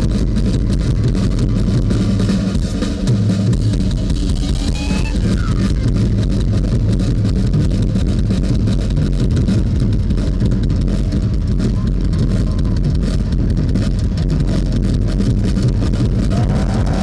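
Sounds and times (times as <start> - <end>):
distorted low rumble: 0.0 - 17.0
drum kit played hard: 0.0 - 17.0
live rock music: 0.0 - 17.0.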